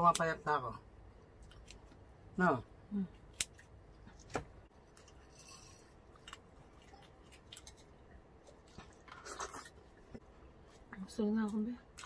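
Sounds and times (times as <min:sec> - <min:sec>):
chewing: 0:04.9 - 0:09.9.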